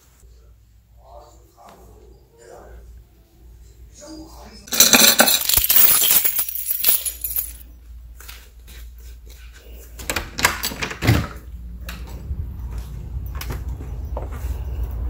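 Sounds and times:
low rumble of outdoor air: 0:11.3 - 0:15.0.

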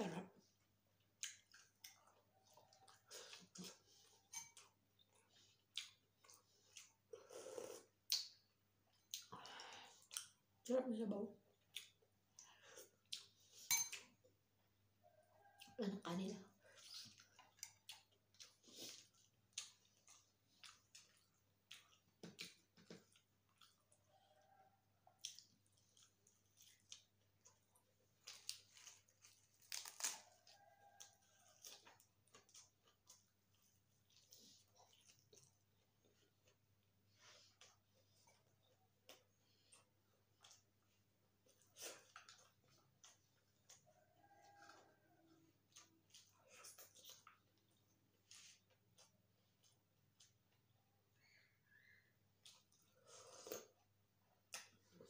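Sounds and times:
soft chewing: 0:00.0 - 0:55.0
spoon clinking on a bowl: 0:04.3 - 0:04.6, 0:13.7 - 0:14.0
lettuce leaves crinkling and tearing: 0:28.1 - 0:30.6.

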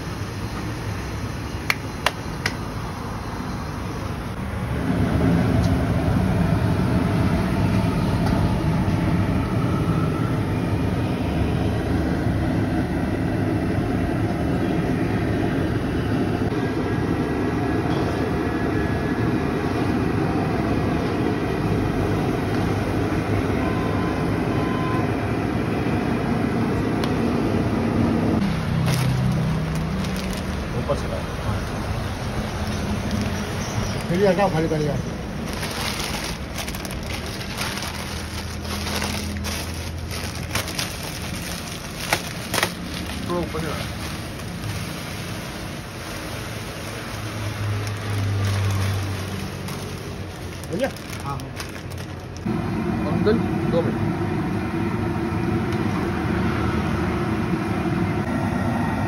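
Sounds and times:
liquid boiling hard: 0:41.1 - 0:51.4.

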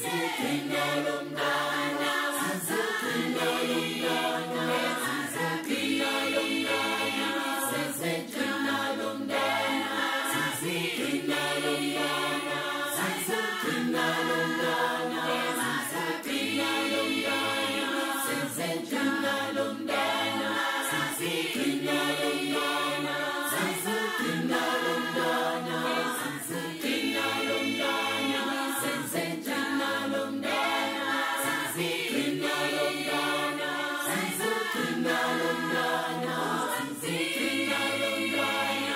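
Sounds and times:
choir singing in harmony: 0:00.0 - 0:38.9.

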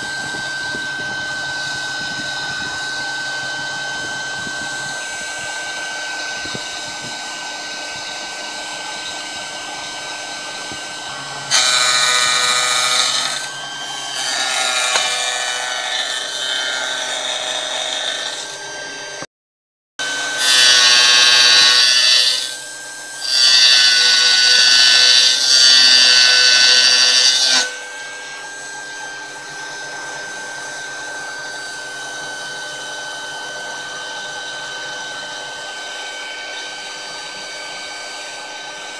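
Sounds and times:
spindle high whine: 0:00.0 - 0:14.2.

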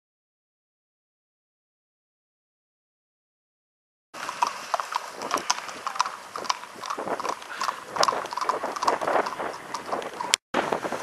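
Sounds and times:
horses' hooves clip-clopping on wet road: 0:04.2 - 0:10.9.

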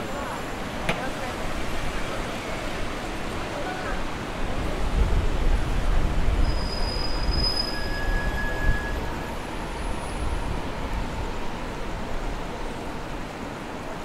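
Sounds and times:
city traffic rumble: 0:00.0 - 0:14.0
lower squeal: 0:06.4 - 0:10.3.

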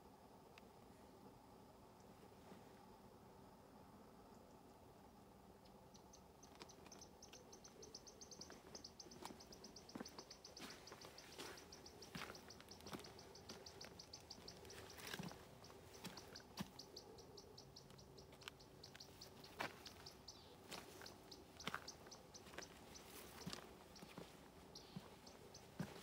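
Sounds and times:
footsteps on gravel path: 0:08.4 - 0:16.9, 0:18.9 - 0:26.0.

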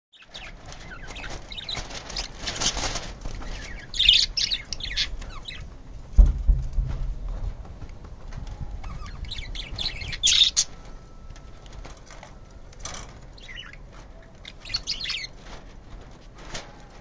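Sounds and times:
budgerigars chirping: 0:00.2 - 0:05.6, 0:08.8 - 0:10.8, 0:13.4 - 0:15.4.

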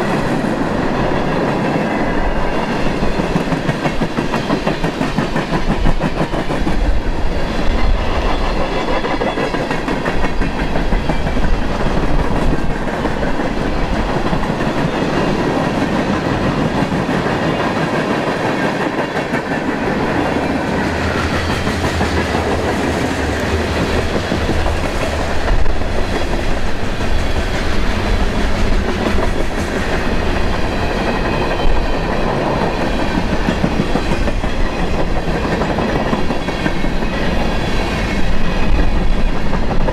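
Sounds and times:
freight train rumbling past: 0:00.0 - 0:39.9.

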